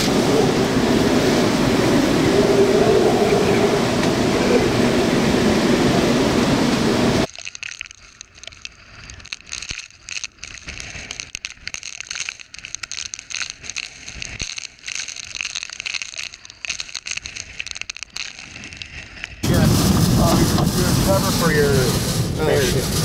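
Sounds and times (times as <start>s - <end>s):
wind and driving rain: 0.0s - 7.3s, 15.4s - 23.0s.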